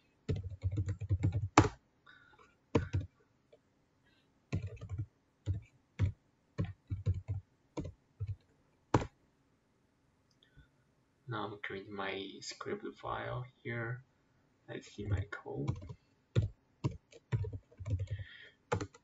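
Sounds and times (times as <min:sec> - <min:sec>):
typing on computer keyboard: 0:00.3 - 0:01.8, 0:02.8 - 0:03.1, 0:04.5 - 0:09.1, 0:15.0 - 0:19.0.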